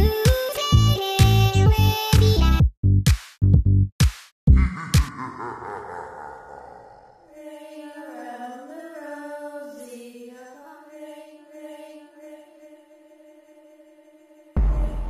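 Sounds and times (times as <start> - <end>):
drum-machine music: 0.3 - 5.3, 14.6 - 15.0
person singing wordless line: 4.7 - 13.7.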